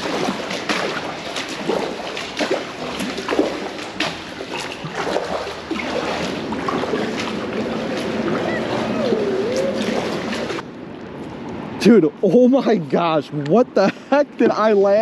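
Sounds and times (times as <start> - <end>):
paddle strokes through water: 0.0 - 10.7
water dripping: 0.0 - 11.0
water splashes: 0.0 - 12.0.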